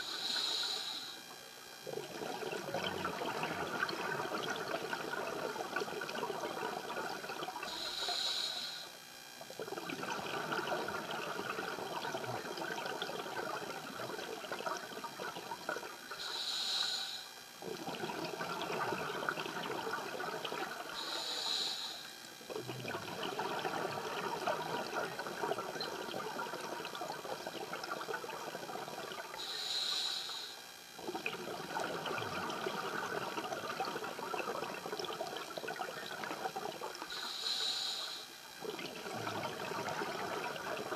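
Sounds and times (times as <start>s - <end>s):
diver inhaling through regulator: 0.0s - 1.2s, 7.7s - 9.0s, 16.2s - 17.4s, 21.0s - 22.2s, 29.4s - 30.6s, 37.1s - 38.3s
exhaled bubbles rushing: 1.9s - 7.9s, 9.5s - 16.2s, 17.6s - 21.0s, 22.4s - 29.4s, 31.0s - 37.2s, 38.6s - 40.9s.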